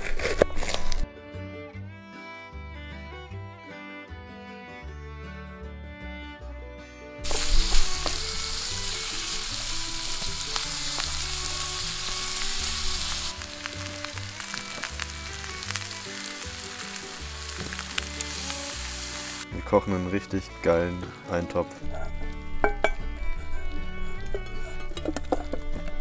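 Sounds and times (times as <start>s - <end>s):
food sizzling in a pan: 7.2s - 19.5s.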